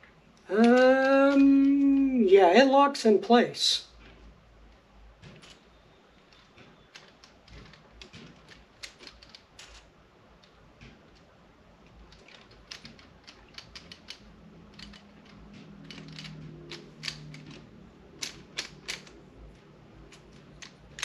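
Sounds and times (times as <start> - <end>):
tripod head clicks and rattles: 6.2 - 21.0.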